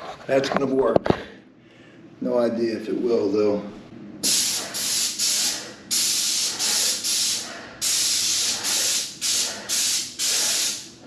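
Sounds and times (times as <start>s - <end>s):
paint spray gun hissing: 4.2s - 10.9s.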